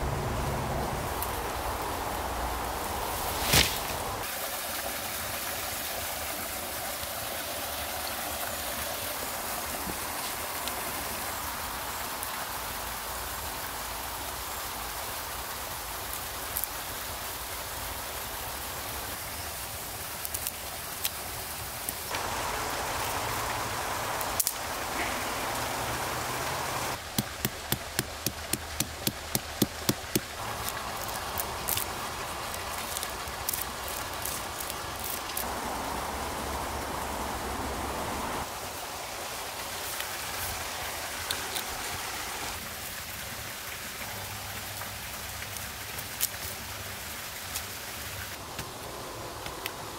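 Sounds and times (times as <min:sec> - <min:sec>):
small stream rushing: 0:00.0 - 0:49.9
stick tapping against log: 0:27.0 - 0:30.4.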